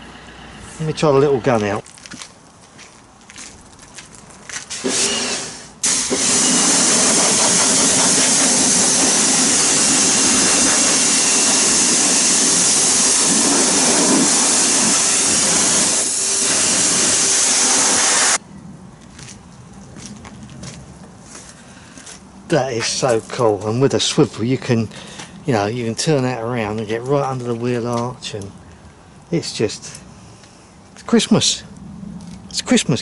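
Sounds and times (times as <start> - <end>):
pressure washer spray hissing: 4.7 - 18.4
pump drone: 4.7 - 18.4.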